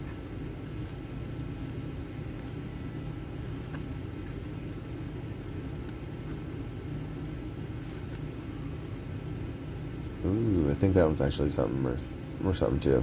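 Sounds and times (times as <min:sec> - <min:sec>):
trading cards flipped by hand: 0:00.0 - 0:02.8, 0:03.4 - 0:04.6, 0:05.5 - 0:06.4, 0:07.7 - 0:08.5
low background hum: 0:00.0 - 0:13.0.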